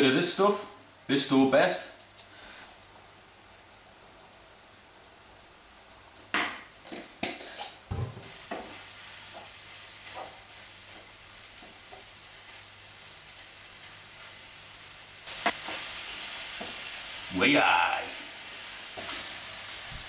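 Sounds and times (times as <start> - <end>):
mince sizzling in oil: 1.2 - 20.0
wooden spoon scraping frying pan: 6.9 - 12.6.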